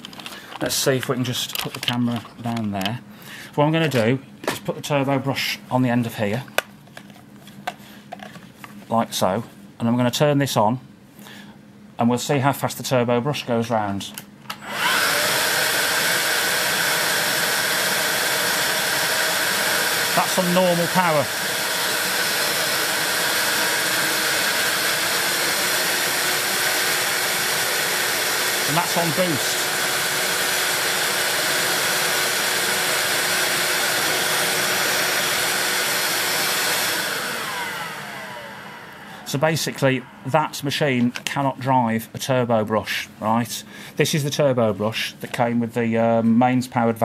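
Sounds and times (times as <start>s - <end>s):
vacuum cleaner motor running: 14.5s - 40.6s.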